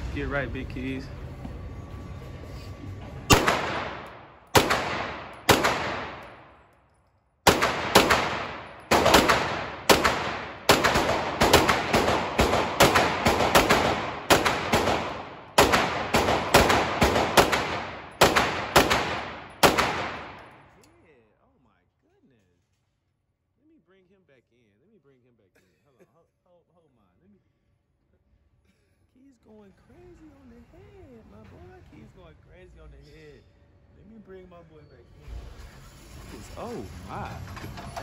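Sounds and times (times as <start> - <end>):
gunshots with ringing tail: 3.3 - 6.6, 7.4 - 20.7.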